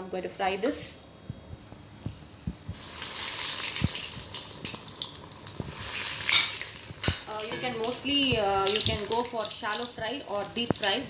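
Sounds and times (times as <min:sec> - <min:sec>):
chicken deep-frying in oil: 0:02.7 - 0:07.4, 0:08.0 - 0:11.0.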